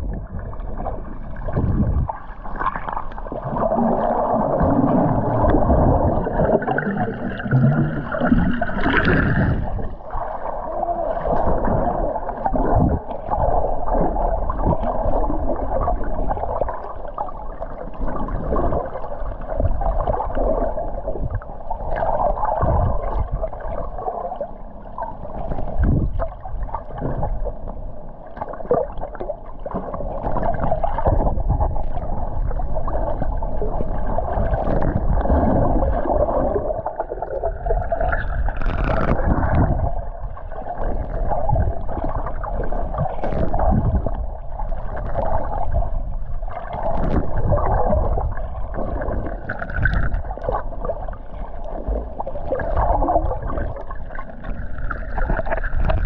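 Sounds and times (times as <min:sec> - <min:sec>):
low rumble: 0:00.0 - 0:10.5
underwater gurgling water: 0:00.0 - 0:56.0.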